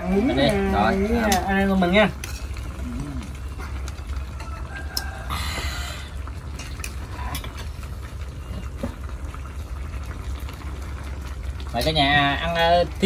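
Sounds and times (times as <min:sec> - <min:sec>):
utensils clicking on bowls: 0:00.0 - 0:05.1, 0:06.5 - 0:07.8.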